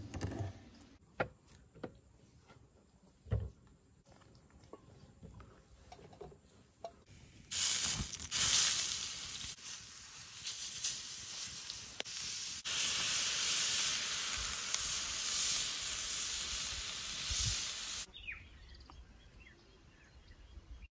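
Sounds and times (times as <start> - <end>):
fish sizzling on a griddle: 7.5 - 18.1.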